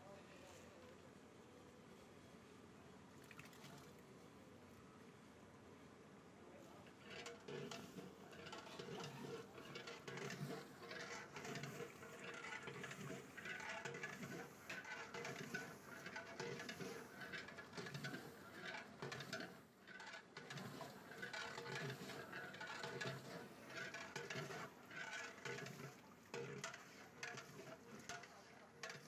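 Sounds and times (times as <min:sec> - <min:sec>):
curry bubbling in a pot: 0:07.1 - 0:29.0
metal ladle stirring: 0:07.1 - 0:29.0.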